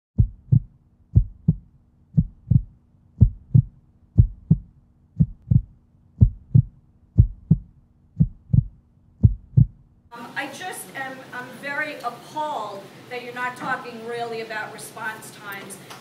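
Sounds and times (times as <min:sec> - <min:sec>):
heartbeat double thumps: 0:00.2 - 0:10.0.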